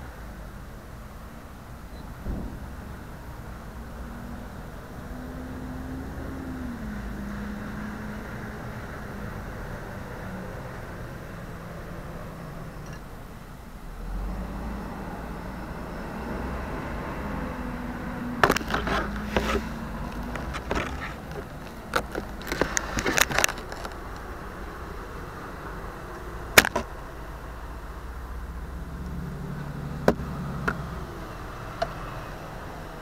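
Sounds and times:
distant street traffic hum: 0.0s - 33.0s
clicks and knocks of handling: 18.4s - 24.3s, 26.6s - 26.9s.

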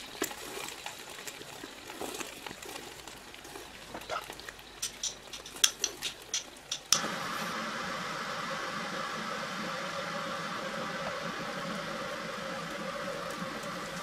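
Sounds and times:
appliance fan whirring: 4.6s - 14.0s.

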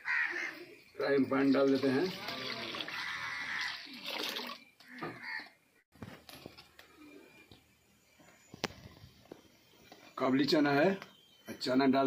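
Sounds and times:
water pouring into metal pan: 1.6s - 4.7s.

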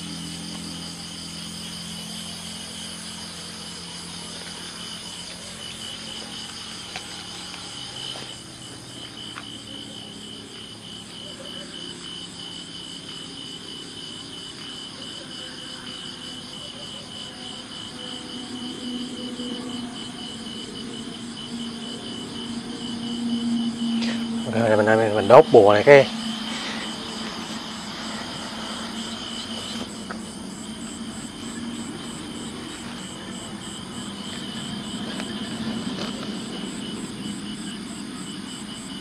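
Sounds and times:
crickets chirping: 0.0s - 39.0s.

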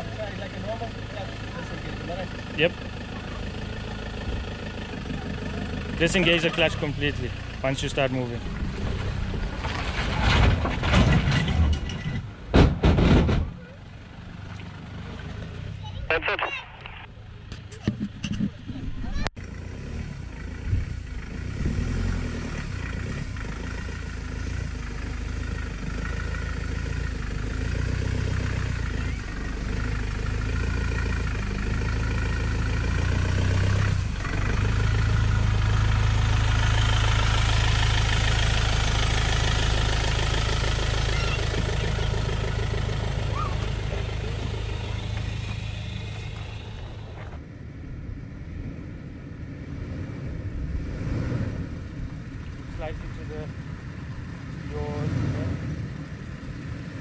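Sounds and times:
pickup engine running at low revs: 0.0s - 57.0s.

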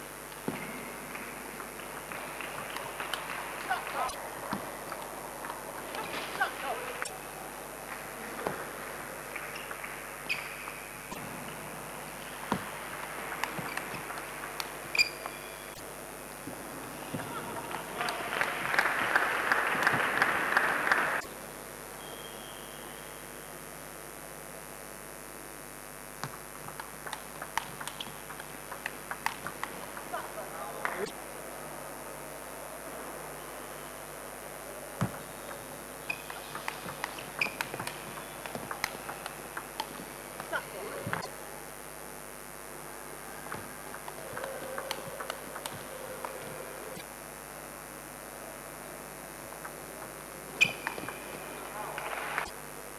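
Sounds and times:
background noise: 0.0s - 52.9s
shoes squeaking on floor: 9.5s - 11.3s, 14.8s - 15.8s, 35.2s - 38.7s
table tennis ball clicking: 26.2s - 30.1s, 35.5s - 40.0s, 44.0s - 46.4s.

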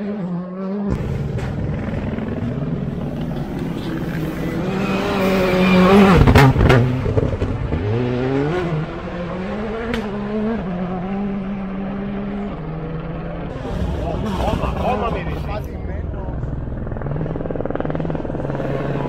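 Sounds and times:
rally car engine revving: 0.0s - 19.0s.

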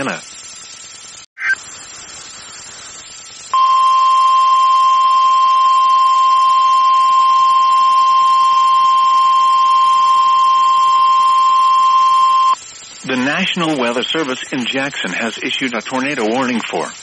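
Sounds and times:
steady warning alarm tone: 3.5s - 12.6s.

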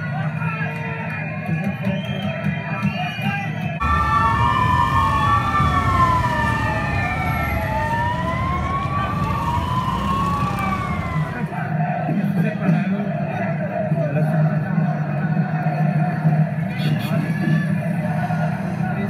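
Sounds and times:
crowd voices: 2.8s - 12.2s
street traffic noise: 3.8s - 11.7s, 16.7s - 19.0s
police sirens wailing: 3.8s - 11.8s.

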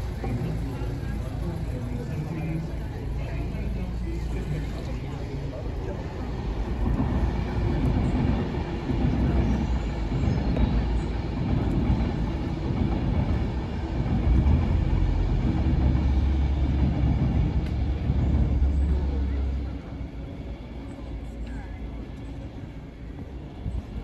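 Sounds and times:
loud low rumble: 13.0s - 20.2s.

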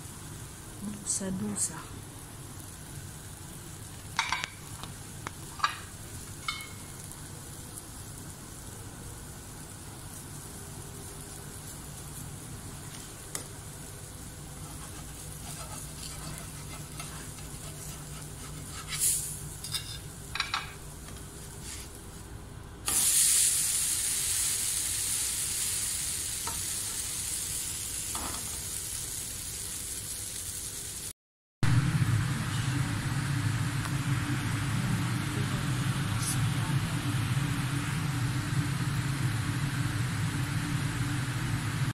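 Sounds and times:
batter sizzling on hot pan: 0.0s - 22.3s, 22.9s - 31.1s
loud sizzle: 0.0s - 41.9s
low steady hum: 31.6s - 41.9s.

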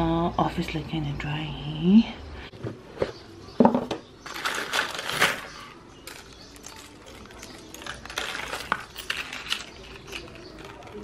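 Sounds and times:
rustling and light clattering: 2.5s - 11.0s.

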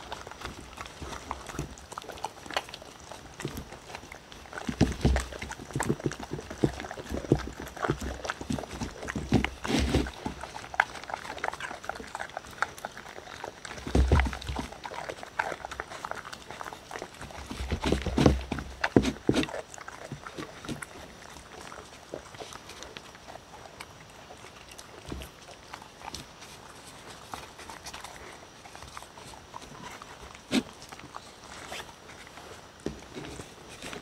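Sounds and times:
dogs chewing wet food: 0.0s - 34.0s
dull thumps: 4.6s - 10.5s, 13.8s - 14.7s, 17.4s - 20.8s.

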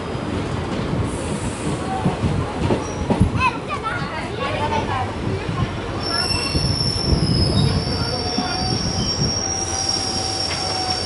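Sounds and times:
train coaches rumbling: 0.0s - 11.0s
lower wheel squeal: 6.0s - 11.0s
train wheels squealing high: 6.0s - 11.0s.

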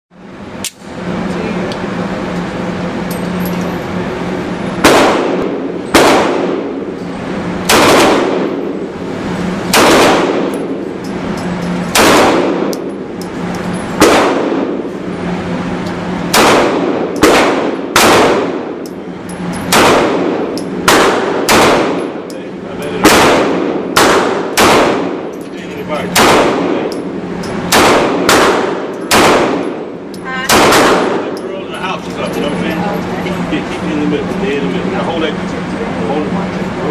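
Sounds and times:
steady low hum: 0.1s - 36.9s
pistol shots echoing indoors: 4.8s - 6.8s, 7.6s - 8.6s, 9.7s - 10.7s, 11.9s - 12.8s, 14.0s - 14.8s, 16.3s - 18.7s, 19.7s - 22.1s, 23.0s - 25.2s, 26.1s - 26.8s, 27.7s - 29.8s, 30.4s - 31.3s.

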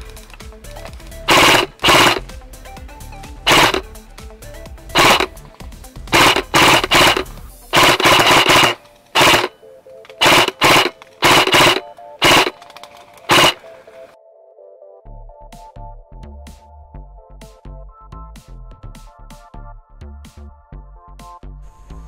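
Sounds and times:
airsoft rifle bursts: 0.0s - 2.4s, 3.4s - 3.9s, 4.9s - 5.5s, 6.1s - 14.2s
background music: 0.0s - 22.0s.

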